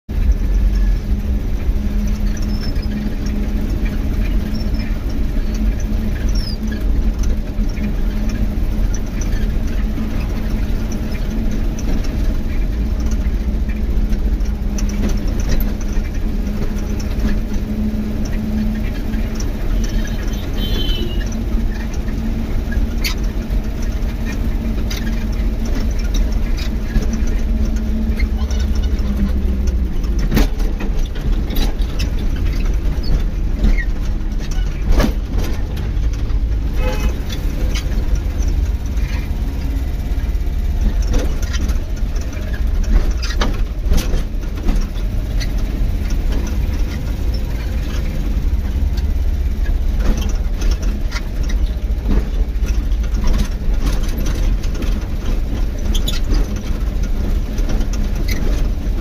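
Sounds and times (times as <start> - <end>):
tyres rumbling on road: 0.1 - 59.0
vehicle engine hum: 0.1 - 59.0
clicks and rattles: 0.2 - 59.0.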